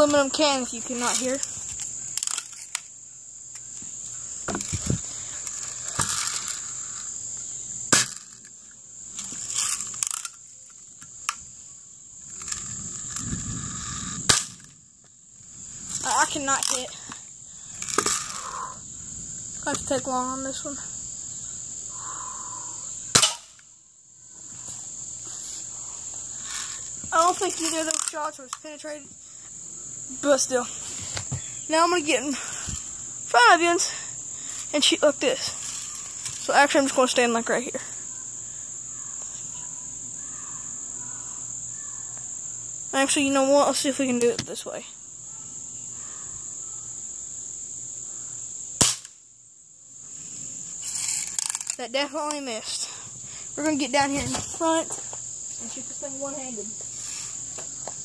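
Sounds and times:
insects buzzing: 0.0 - 58.0
bb gun shot crack: 23.1 - 23.5.

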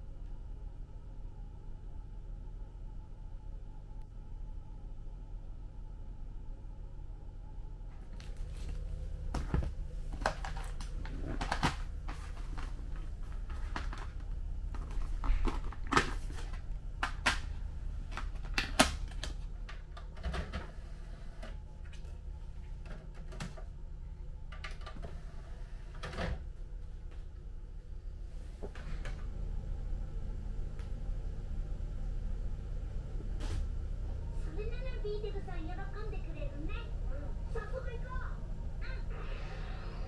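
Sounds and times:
steady low hum: 0.0 - 40.0
plastic cases clicking and crinkling: 8.2 - 17.5, 18.1 - 20.7.

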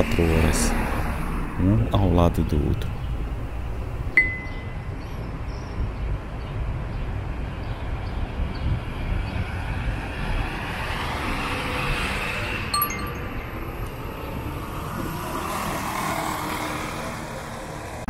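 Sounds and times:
traffic rumble: 0.0 - 18.0
brief high tone: 4.2 - 4.8, 12.8 - 13.7
vehicle passing close: 8.9 - 18.0.

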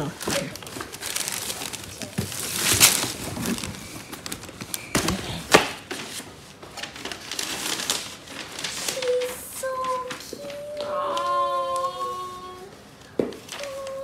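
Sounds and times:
wrapping paper crinkling: 0.0 - 12.7
cardboard box being opened: 0.3 - 5.2.

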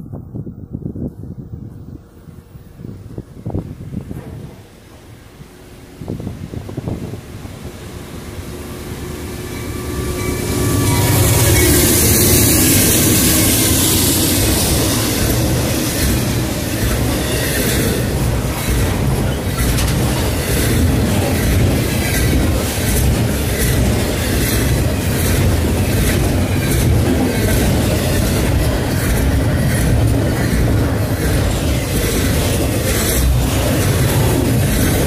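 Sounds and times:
freight train rumbling: 0.0 - 35.0
wheels clicking over rail joints: 14.1 - 35.0.

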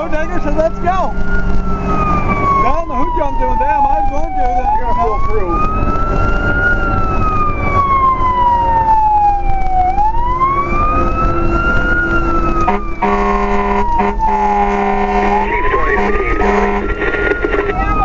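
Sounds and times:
fire engine siren wailing: 0.0 - 18.0
air horn blasts: 12.6 - 17.0.

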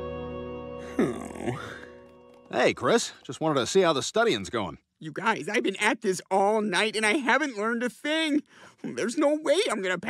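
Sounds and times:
cartoon character groaning: 0.9 - 1.8.

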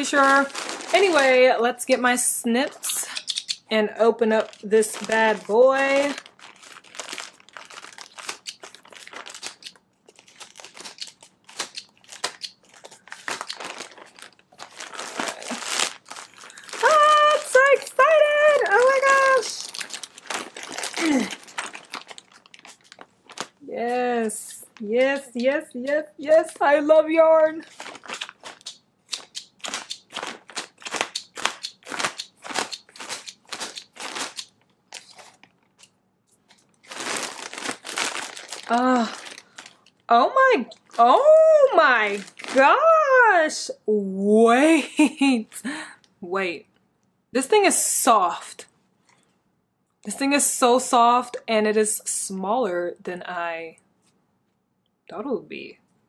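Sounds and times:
packaging crinkling and rustling: 0.0 - 1.5, 2.6 - 26.7, 27.6 - 40.1, 40.7 - 41.2, 42.0 - 42.8
snips clicking: 3.1 - 3.6, 28.1 - 30.1.

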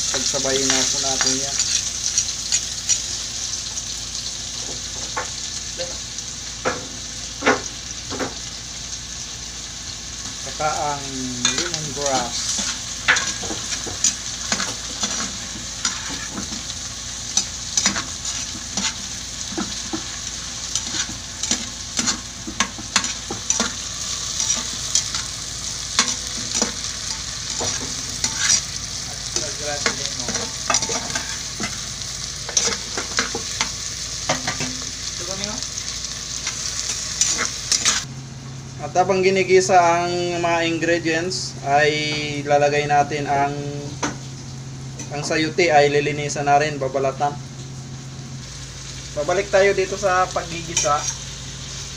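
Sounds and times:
vegetables sizzling in a pot: 0.0 - 51.9
metal ladle scraping a pot: 26.0 - 28.7.

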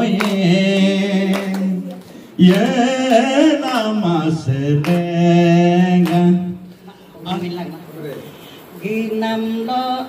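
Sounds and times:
man singing a hymn: 0.0 - 6.7.

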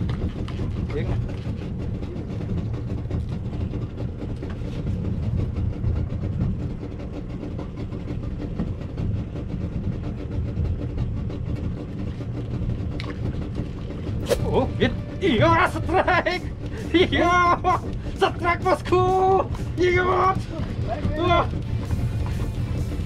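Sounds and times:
boat engine idling: 0.0 - 23.0.

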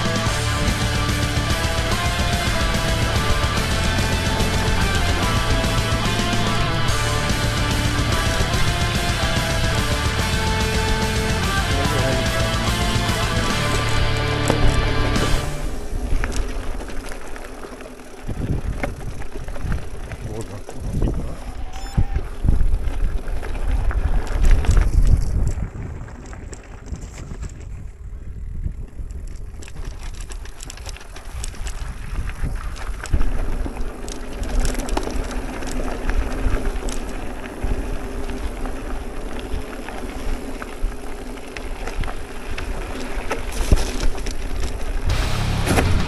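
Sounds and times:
bike rattling over rocks: 0.0 - 46.0
wind buffeting microphone: 18.2 - 45.1.

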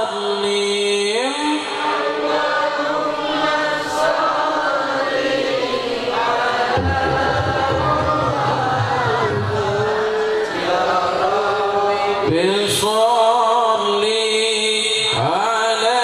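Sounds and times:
man chanting into a microphone: 0.0 - 2.9, 6.7 - 16.0.

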